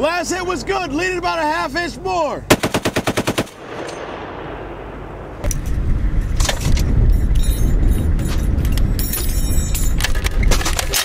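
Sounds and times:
low rumble: 0:03.5 - 0:10.0
metallic clinking and jangling: 0:05.6 - 0:11.0.

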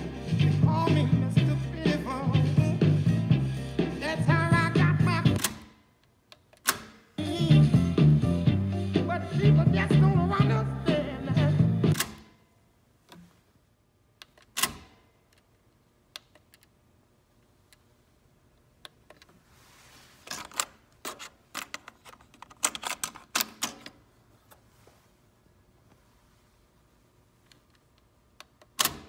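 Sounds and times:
cassette being handled: 0:20.2 - 0:24.7.

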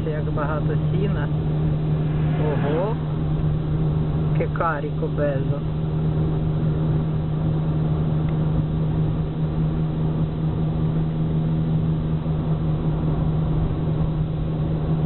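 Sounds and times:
car engine drone: 0:00.0 - 0:15.0
road and tyre noise: 0:00.0 - 0:15.0.

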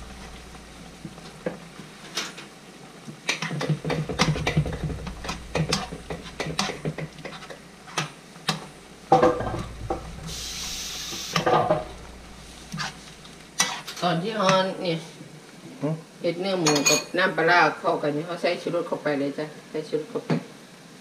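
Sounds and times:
sauce sizzling: 0:00.0 - 0:02.0, 0:03.7 - 0:14.1
metal spoon scraping pan: 0:03.4 - 0:08.0, 0:09.2 - 0:14.0.

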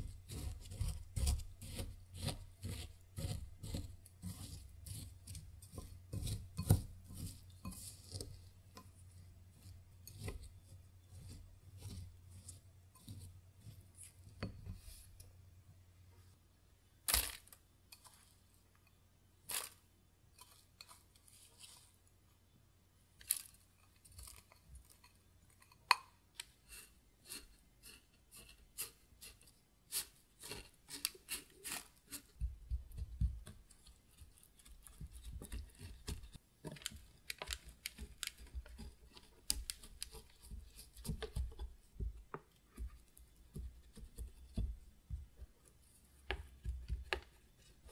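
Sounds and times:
crunchy crumb scraping: 0:00.0 - 0:08.7, 0:17.1 - 0:18.4, 0:19.4 - 0:19.8, 0:26.7 - 0:42.2
spoon scraping glass bowl: 0:00.0 - 0:15.2
soft thumps pressing crumbs: 0:30.4 - 0:47.9.

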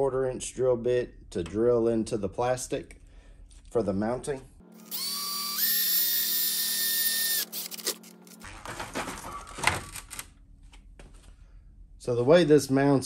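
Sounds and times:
cordless drill motor whine: 0:04.8 - 0:08.4.

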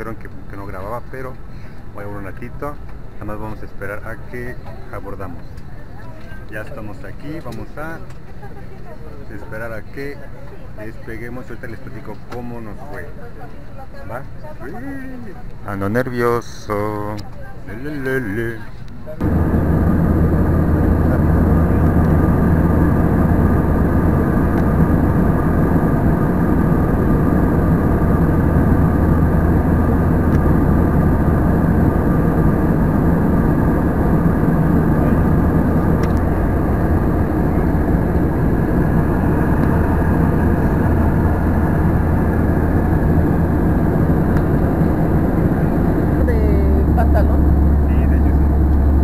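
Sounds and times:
constant low hum: 0:15.4 - 0:49.0
airliner engine drone: 0:19.2 - 0:49.0
rushing air: 0:19.2 - 0:49.0.

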